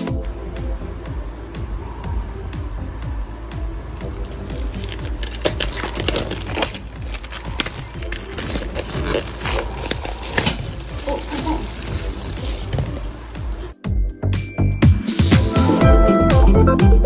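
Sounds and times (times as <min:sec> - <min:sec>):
background music: 0:00.0 - 0:17.0
plastic wrap crinkling: 0:04.0 - 0:13.7.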